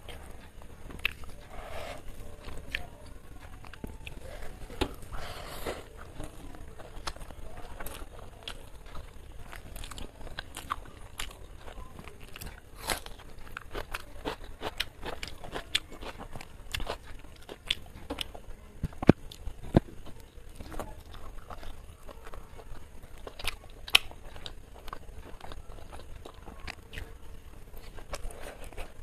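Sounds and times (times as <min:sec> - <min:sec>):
wet chewing and biting: 0:05.9 - 0:29.0.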